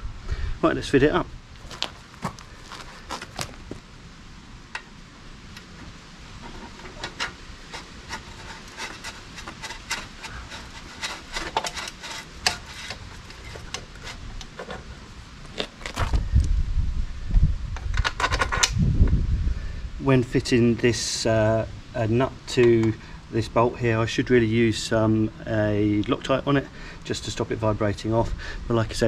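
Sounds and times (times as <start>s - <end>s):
metal scraping and clicking: 5.5s - 16.2s, 17.8s - 18.8s.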